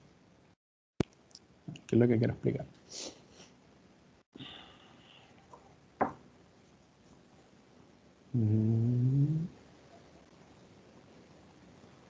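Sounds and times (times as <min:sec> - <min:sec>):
room hiss: 0:01.2 - 0:12.0
man humming: 0:08.3 - 0:09.6.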